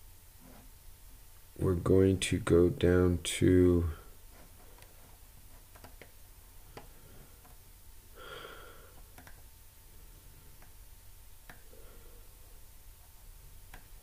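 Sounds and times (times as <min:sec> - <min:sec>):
soft breath: 0:06.6 - 0:07.5, 0:08.1 - 0:09.1, 0:11.6 - 0:12.6
faint clicks: 0:09.0 - 0:09.4.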